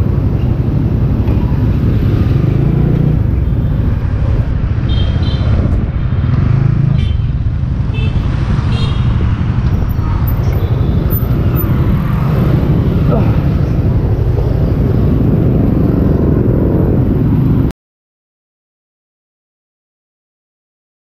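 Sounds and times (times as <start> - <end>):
motorcycle engine rumble: 0.0 - 17.7
road noise: 0.0 - 17.7
wind buffeting microphone: 7.4 - 17.7.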